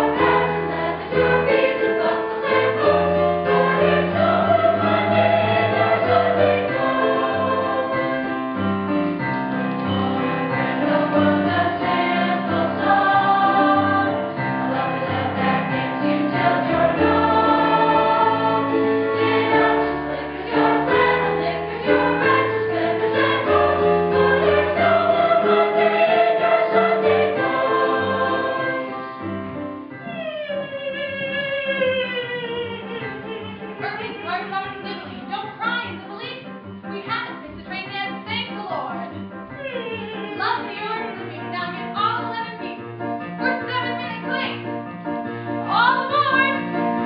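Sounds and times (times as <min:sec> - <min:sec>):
chorus singing a show tune: 0:00.1 - 0:08.4, 0:10.7 - 0:29.1.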